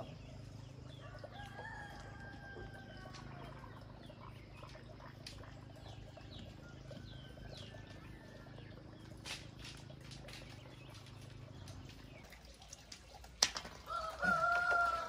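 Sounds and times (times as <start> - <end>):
small birds chirping: 0.0 - 15.0
rooster crowing: 13.9 - 15.0.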